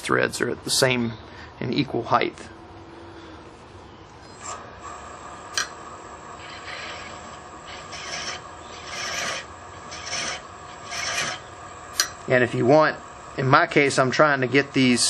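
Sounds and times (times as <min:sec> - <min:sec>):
wood lathe running: 0:04.4 - 0:12.1
sharp click: 0:05.5 - 0:05.8, 0:12.0 - 0:12.2
chasing tool scraping wood threads: 0:06.4 - 0:12.2.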